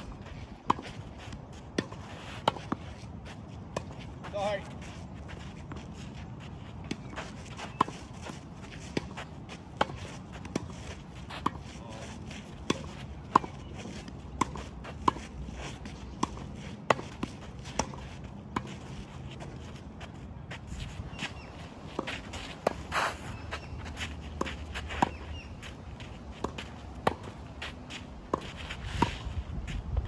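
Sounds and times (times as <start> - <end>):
footsteps: 13.8 - 30.0.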